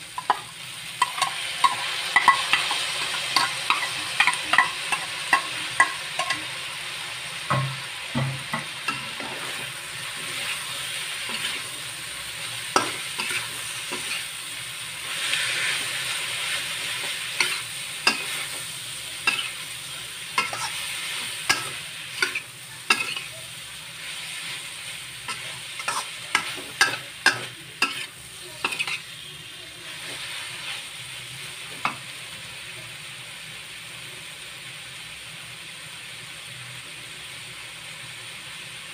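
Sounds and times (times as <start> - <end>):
stir-fry sizzling in a wok: 0.0 - 38.9
spatula scraping and clinking on wok: 1.0 - 6.5, 12.7 - 14.3, 17.0 - 18.6, 20.4 - 20.8, 21.4 - 23.3, 25.3 - 29.0.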